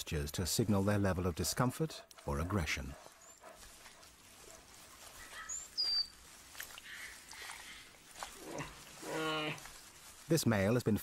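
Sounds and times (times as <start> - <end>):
bird whistling: 5.3 - 6.2.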